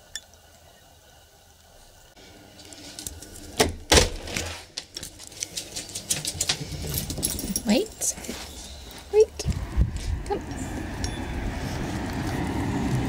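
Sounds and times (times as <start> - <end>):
rustling: 4.2 - 9.2.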